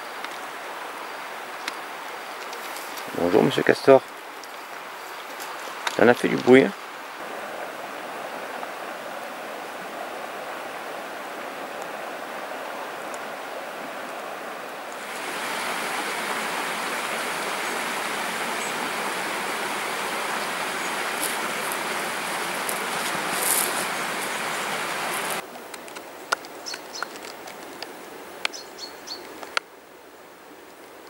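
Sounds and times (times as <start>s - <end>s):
river water rushing: 0.0s - 25.5s
faint bird chirps: 28.5s - 29.2s.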